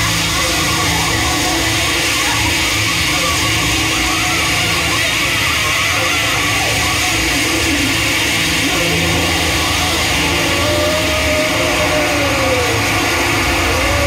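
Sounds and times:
loud wall of hiss: 0:00.0 - 0:14.0
low droning tones: 0:00.0 - 0:14.0.

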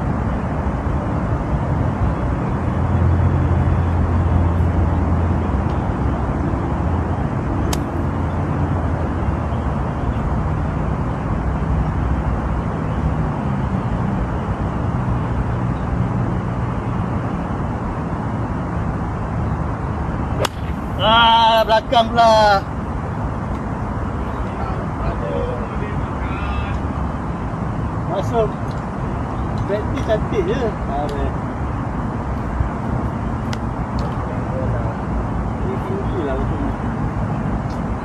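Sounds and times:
golf cart rumbling: 0:20.2 - 0:27.5.

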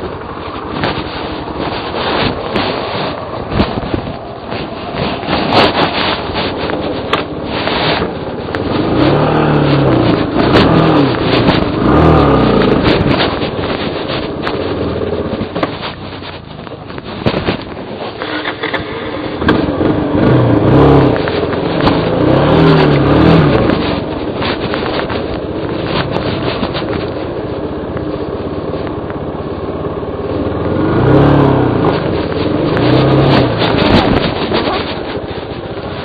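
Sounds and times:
scraping: 0:00.0 - 0:28.9, 0:30.9 - 0:36.0
dirt bike engine revving: 0:07.9 - 0:13.2, 0:21.8 - 0:23.8, 0:30.7 - 0:35.4.

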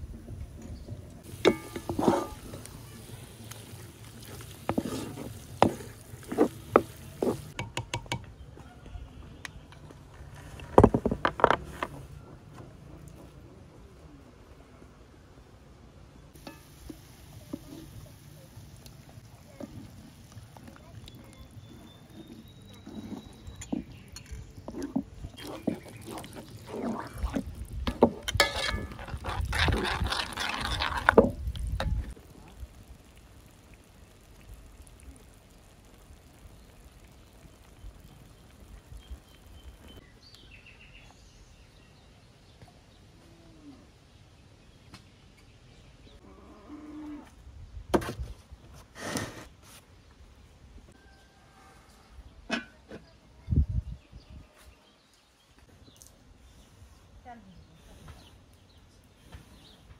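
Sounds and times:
spatula scraping wet mixture in pot: 0:01.3 - 0:07.6, 0:19.6 - 0:32.2.

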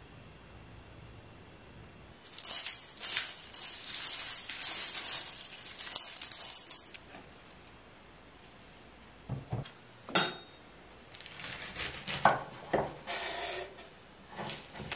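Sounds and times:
salt grains falling into a bowl: 0:02.2 - 0:07.0.

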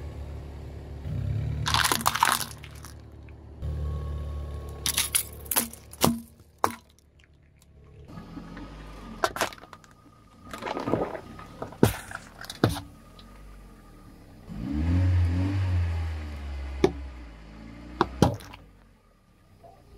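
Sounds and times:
low car rumble: 0:00.0 - 0:19.9
tyre crushing objects: 0:01.7 - 0:03.0, 0:10.4 - 0:12.9.

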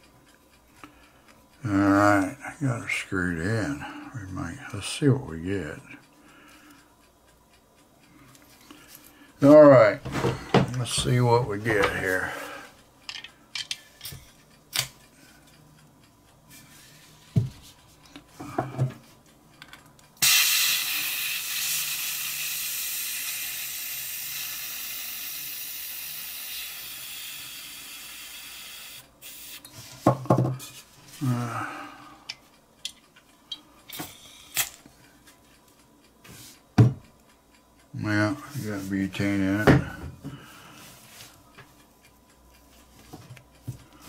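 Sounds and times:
small metallic clicks and taps: 0:13.0 - 0:15.0
gas hissing into lighter: 0:20.2 - 0:29.8.

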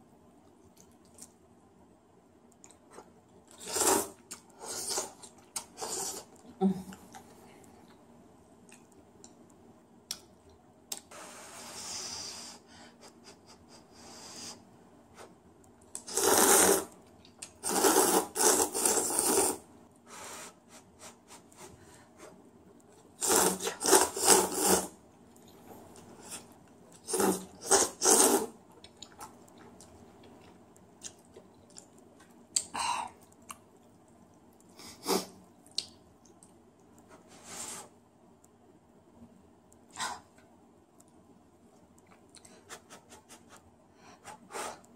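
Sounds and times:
noodles being slurped: 0:03.5 - 0:06.3, 0:16.0 - 0:16.9, 0:17.5 - 0:19.6, 0:23.2 - 0:24.9, 0:26.3 - 0:28.5.

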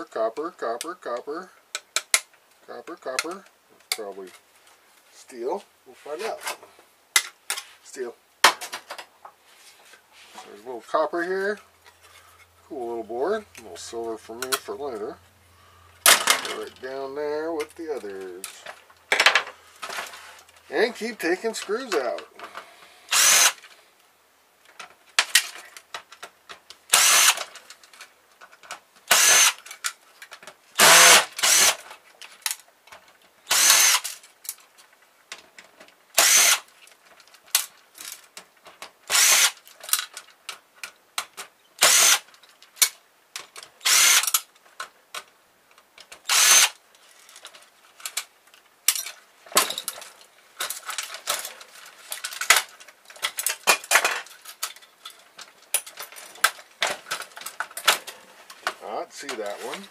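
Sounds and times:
cordless drill short bursts: 0:23.1 - 0:23.6, 0:26.9 - 0:27.4, 0:29.1 - 0:29.6, 0:30.8 - 0:31.8, 0:33.5 - 0:34.1, 0:36.2 - 0:36.7, 0:39.1 - 0:39.6, 0:41.8 - 0:42.3, 0:43.8 - 0:44.4, 0:46.2 - 0:46.8
clicks and clatter: 0:47.0 - 0:59.9.

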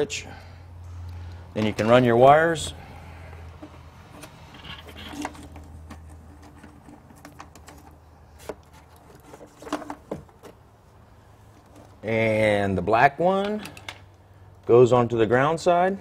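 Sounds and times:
clicks and rustles of wires: 0:01.2 - 0:02.3, 0:03.3 - 0:10.6, 0:11.5 - 0:12.1.

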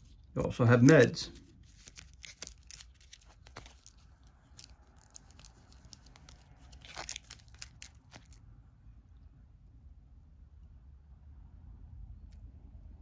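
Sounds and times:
cards clicking and rustling: 0:00.0 - 0:08.4.

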